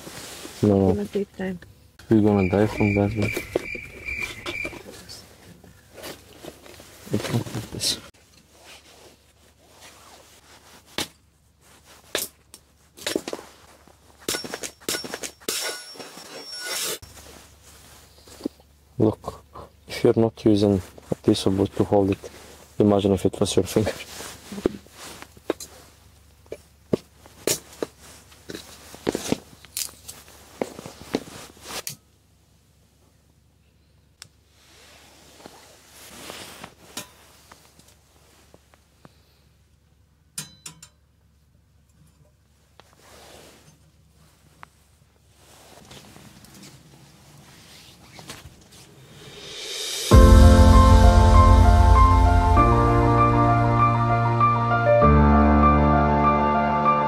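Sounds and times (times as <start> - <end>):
soft rustling: 3.5 - 14.2, 17.0 - 18.7, 23.5 - 31.8, 34.5 - 39.0, 42.4 - 50.0
short rustle: 34.5 - 38.8, 42.8 - 50.1.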